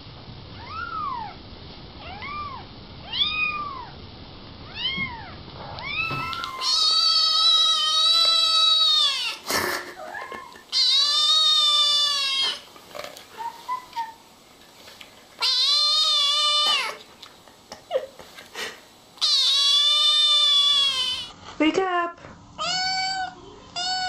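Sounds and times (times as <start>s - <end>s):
kitten meowing: 2.0s - 3.9s, 4.7s - 9.4s, 10.1s - 12.6s, 15.4s - 17.0s, 19.2s - 21.3s, 22.6s - 24.0s.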